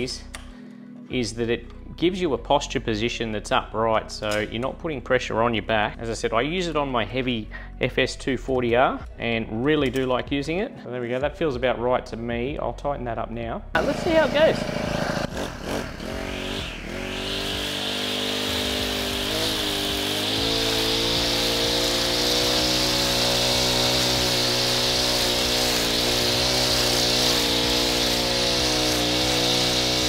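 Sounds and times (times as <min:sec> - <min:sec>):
string trimmer cutting grass: 0:13.8 - 0:30.0.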